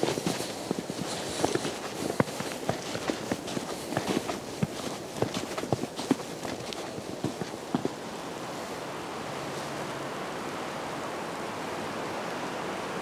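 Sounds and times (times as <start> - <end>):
footsteps crunching in snow: 0.0 - 8.0
steady rushing noise: 0.0 - 8.8.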